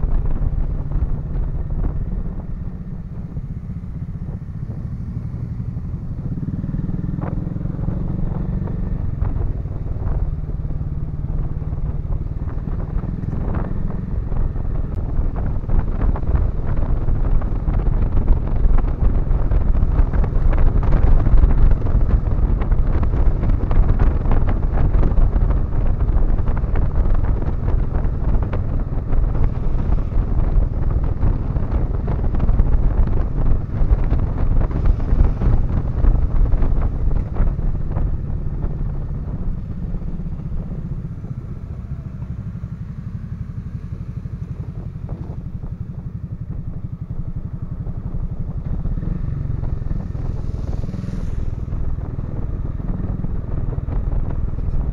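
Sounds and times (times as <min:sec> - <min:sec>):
wind noise on microphone: 0:00.0 - 0:54.9.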